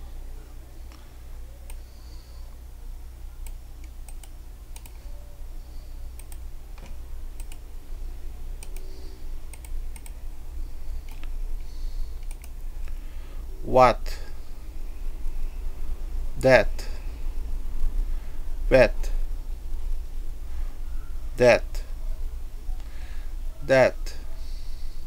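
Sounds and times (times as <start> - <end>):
steady low hum: 0.0 - 25.0
keyboard and mouse clicks: 3.4 - 5.0, 6.2 - 7.6, 8.6 - 10.2, 11.0 - 11.4, 12.2 - 12.9.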